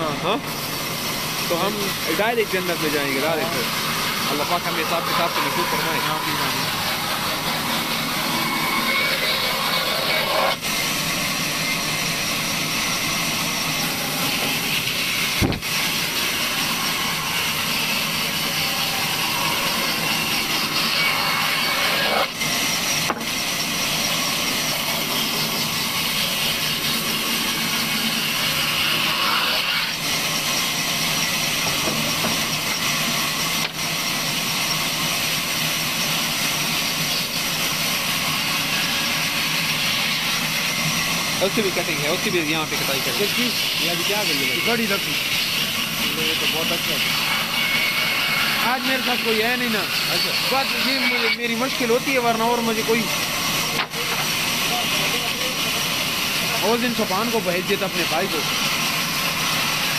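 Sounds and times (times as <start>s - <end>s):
band saw ripping wood: 1.6s - 10.9s, 13.7s - 23.5s.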